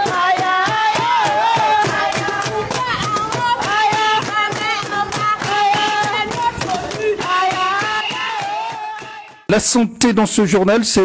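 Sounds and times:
women singing together: 0.0s - 9.4s
hands clapping in rhythm: 0.0s - 9.5s.

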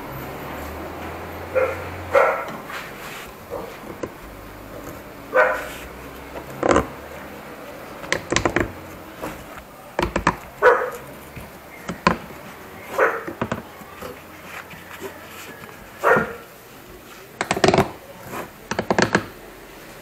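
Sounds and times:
dog barking: 1.4s - 2.6s, 5.3s - 5.8s, 10.6s - 11.1s, 12.8s - 13.4s, 15.9s - 16.5s.

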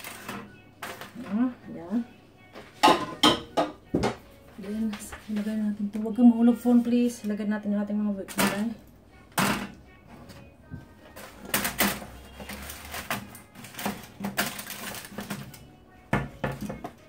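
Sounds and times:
aluminium foil crinkling: 0.0s - 1.5s, 11.0s - 15.8s.

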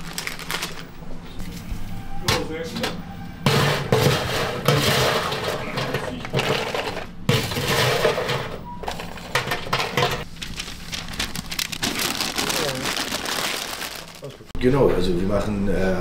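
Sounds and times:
dishes and utensils clinking: 2.3s - 10.3s.

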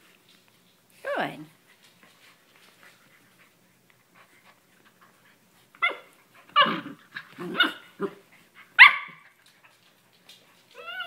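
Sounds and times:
puppy yipping: 5.8s - 6.8s, 8.8s - 9.2s, 10.8s - 11.0s.

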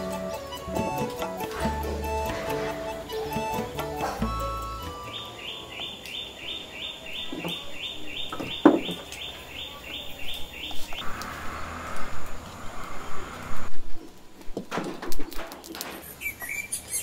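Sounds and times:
bird chirping: 0.0s - 11.9s, 15.9s - 17.0s.

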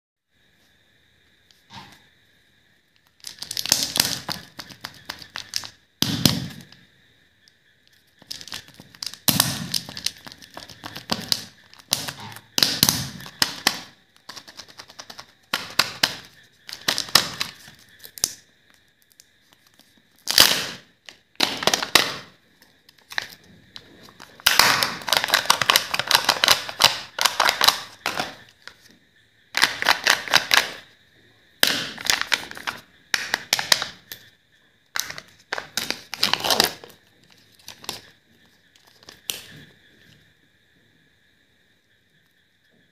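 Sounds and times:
plastic packaging crinkling: 24.1s - 28.4s, 35.0s - 38.1s.

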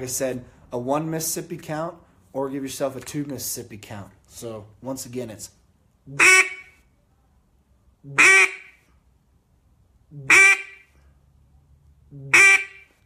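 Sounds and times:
duck call hen quacks: 6.1s - 6.8s, 8.1s - 8.8s, 10.2s - 11.0s, 12.2s - 13.0s.

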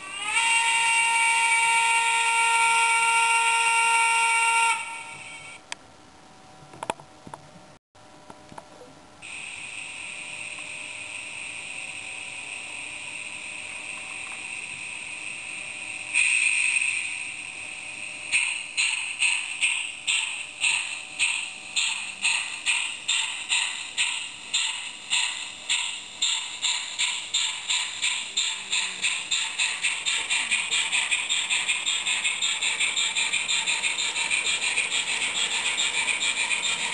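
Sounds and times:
model train steam whistle: 0.0s - 5.6s, 9.2s - 26.7s
steam hissing: 9.2s - 36.9s.

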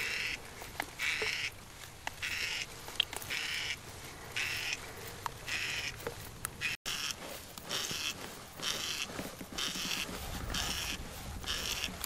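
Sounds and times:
small pump clicks: 2.9s - 3.3s.

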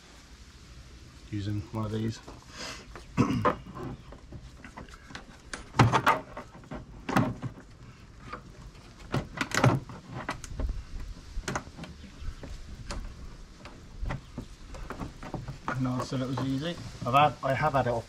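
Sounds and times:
plastic trim clicking and knocking: 8.3s - 16.6s.

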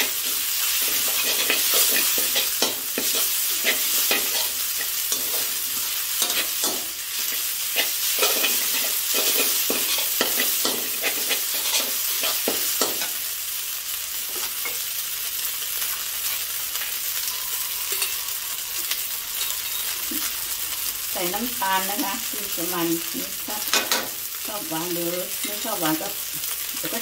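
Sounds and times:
metal spatula scraping a wok: 0.0s - 13.2s, 16.8s - 20.6s
frying sizzle: 0.0s - 27.0s.

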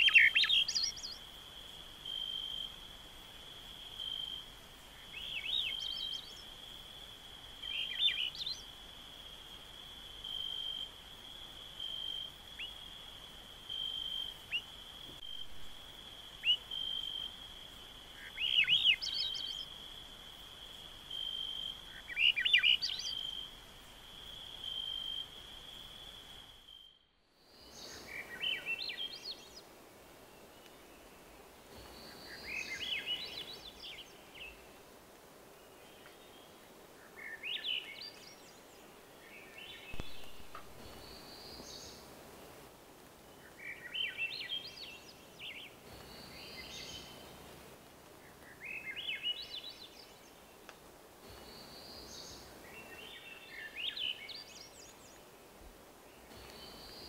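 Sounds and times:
faint bird call notes: 0.0s - 1.2s.

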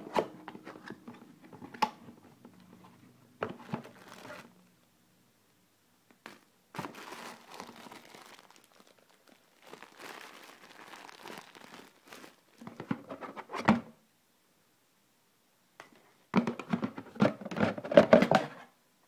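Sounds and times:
cardboard box rustling: 3.5s - 4.5s
plastic wrapping crinkling: 3.6s - 4.6s, 6.2s - 12.9s.

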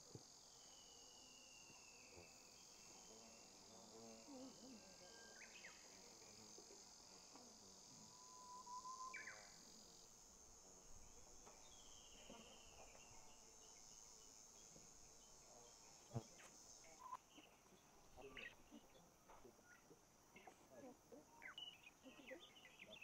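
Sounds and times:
insects trilling: 0.0s - 23.0s.

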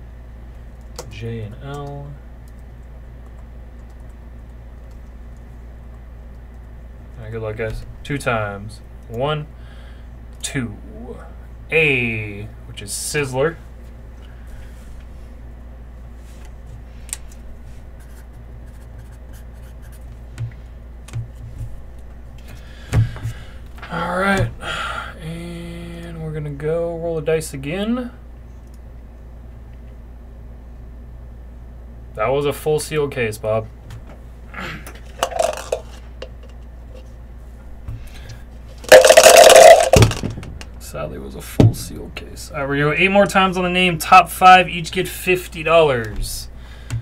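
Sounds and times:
low electrical hum: 0.0s - 47.0s
dice rattling in a cup: 35.1s - 36.0s, 38.8s - 40.2s.

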